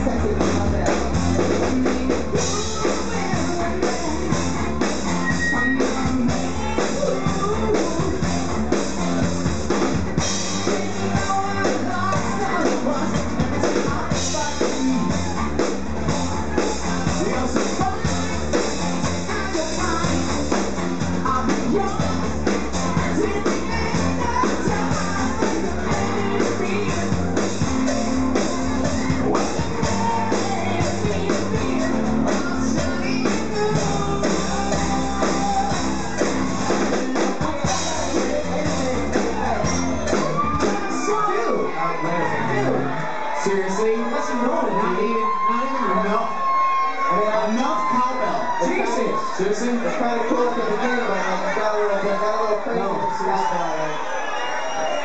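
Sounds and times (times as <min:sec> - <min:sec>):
person singing: 0:00.0 - 0:09.2, 0:10.2 - 0:42.9
live rock band playing: 0:00.0 - 0:55.0.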